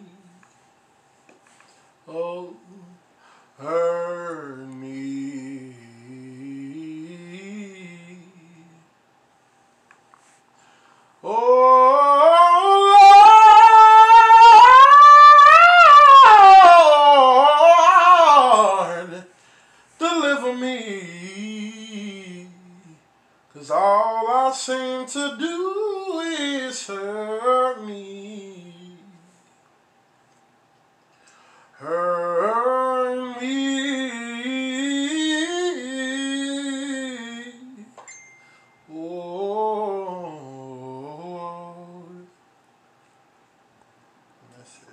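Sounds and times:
man singing unaccompanied: 0:02.1 - 0:09.0, 0:11.2 - 0:29.4, 0:31.8 - 0:38.0, 0:38.9 - 0:42.4.

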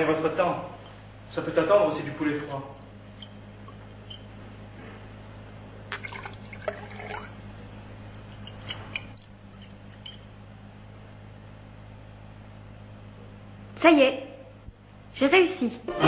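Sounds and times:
steady low hum: 0:00.0 - 0:16.0
liquid swirling in glass flask: 0:05.9 - 0:10.4.

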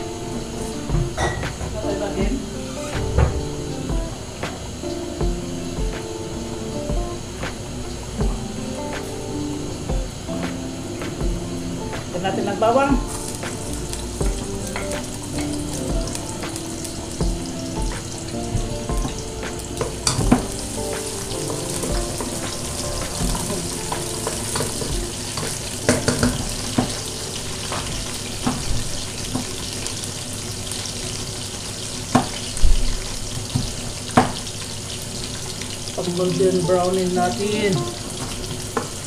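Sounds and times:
garlic sizzling in hot oil: 0:12.4 - 0:39.0.

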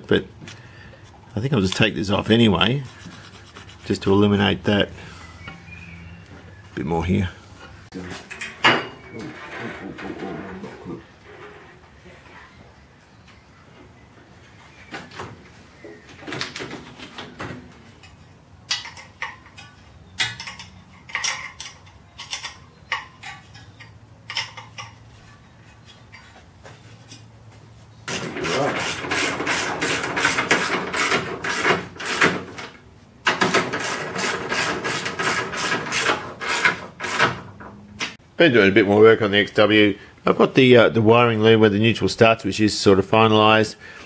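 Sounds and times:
hand tools clicking and knocking: 0:16.3 - 0:25.1, 0:28.1 - 0:38.2.

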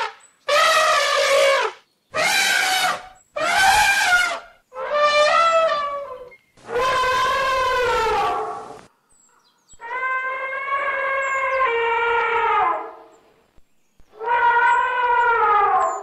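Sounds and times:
elephant trumpeting: 0:00.0 - 0:08.8, 0:14.2 - 0:16.0.

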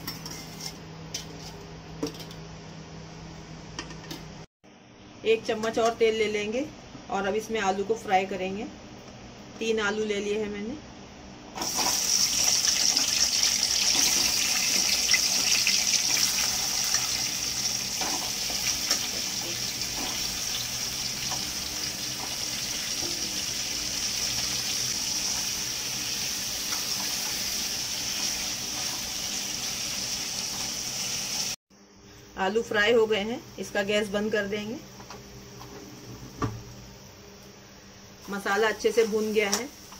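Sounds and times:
potatoes sizzling in hot oil: 0:11.6 - 0:31.6.

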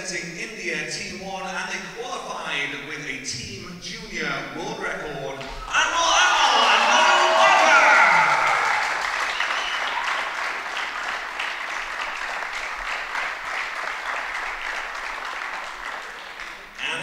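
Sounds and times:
audience applauding: 0:05.6 - 0:17.0.

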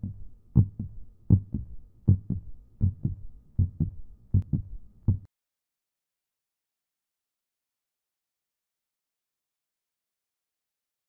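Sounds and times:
heartbeat thumps: 0:00.0 - 0:05.3.

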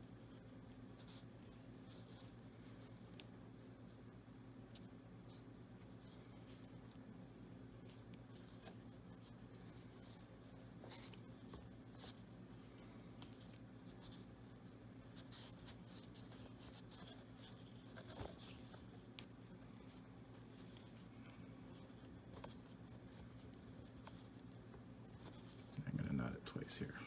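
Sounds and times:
fingers rustling thread: 0:00.0 - 0:26.9
steady low hum: 0:00.0 - 0:27.0.

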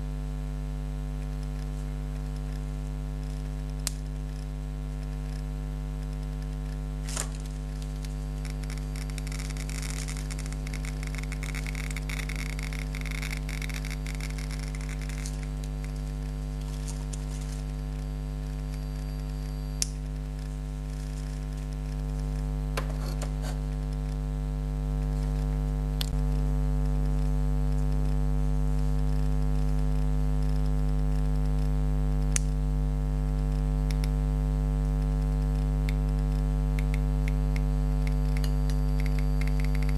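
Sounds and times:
electrical mains hum: 0:00.0 - 0:39.9
geiger counter clicks: 0:01.2 - 0:23.5, 0:33.9 - 0:34.2, 0:35.8 - 0:39.9.

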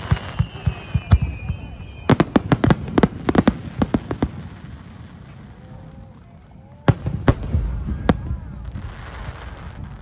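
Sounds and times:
faint high falling whistle: 0:00.0 - 0:02.7
fireworks banging and cracking: 0:00.0 - 0:10.0.

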